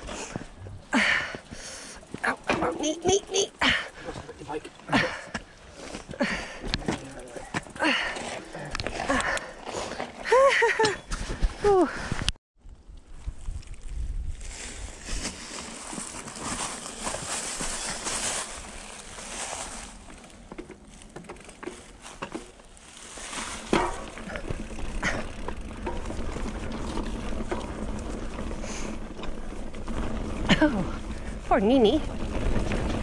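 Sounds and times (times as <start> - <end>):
bike tyres crunching on gravel: 4.0 - 11.6, 12.7 - 33.0
clicks and knocks from bike: 6.0 - 11.6, 19.9 - 22.8, 23.4 - 31.4
wind rumble on microphone: 11.1 - 15.4.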